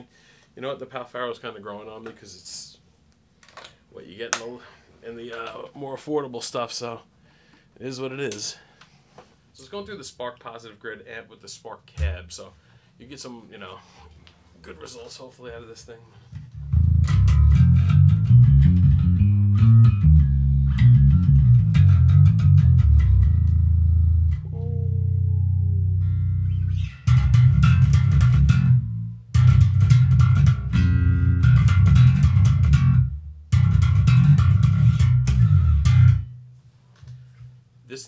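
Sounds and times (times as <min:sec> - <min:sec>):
electric bass riffs: 0:12.0 - 0:12.4, 0:16.3 - 0:37.5.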